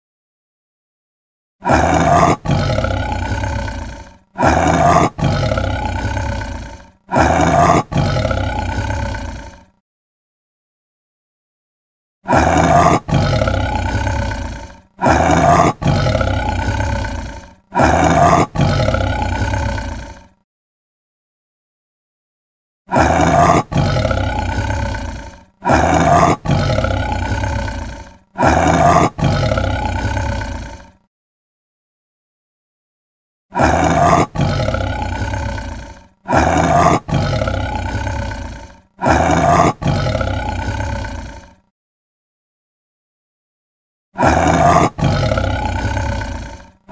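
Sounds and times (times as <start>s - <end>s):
tiger roaring: 1.6s - 9.8s, 12.3s - 20.4s, 22.9s - 31.0s, 33.5s - 41.7s, 44.2s - 46.9s.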